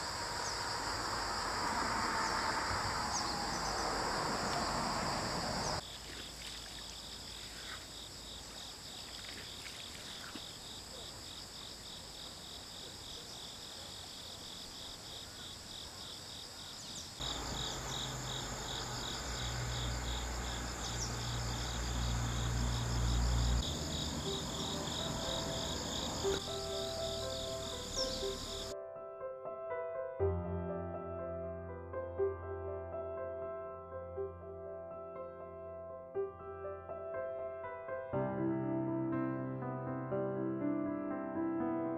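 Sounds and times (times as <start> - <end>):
crickets chirping: 0.0 - 28.8.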